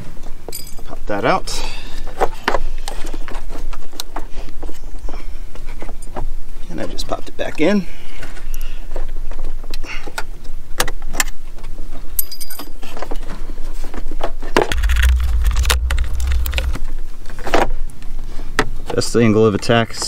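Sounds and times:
low rumble: 14.7 - 17.2.

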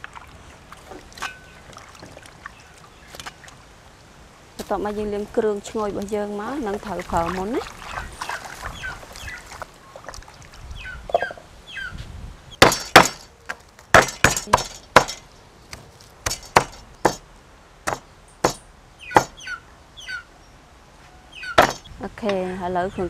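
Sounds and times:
cleaver chopping on wooden block: 12.6 - 13.3, 13.9 - 17.2, 17.9 - 18.6, 19.2 - 19.4, 21.6 - 21.8.

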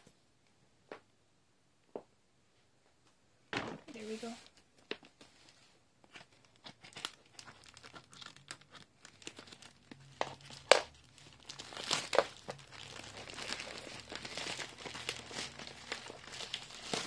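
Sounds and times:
plastic bag crinkling: 6.3 - 17.0
plastic sharp crack: 6.6 - 11.1, 11.7 - 12.7
scissors cutting plastic bag: 6.6 - 17.0.

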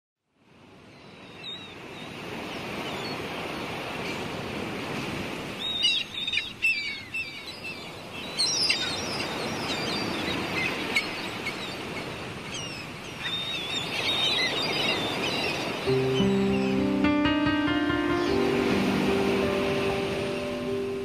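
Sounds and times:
gentle surf: 0.4 - 21.0
small birds chirping: 5.6 - 17.1.

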